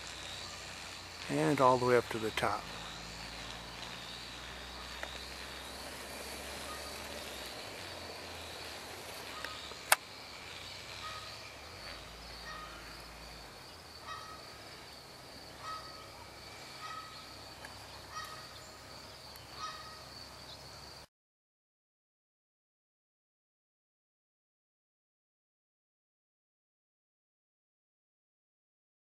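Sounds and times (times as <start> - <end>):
insect drone: 0.0 - 21.1
bird calls: 2.5 - 20.8.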